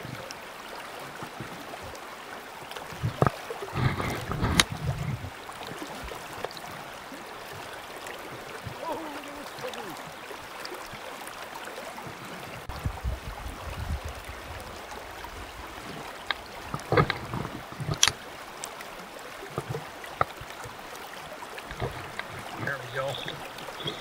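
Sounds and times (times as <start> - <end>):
stream current rushing: 0.0 - 24.0
fishing rod clicks and knocks: 3.1 - 4.8, 16.2 - 18.2, 21.6 - 24.0.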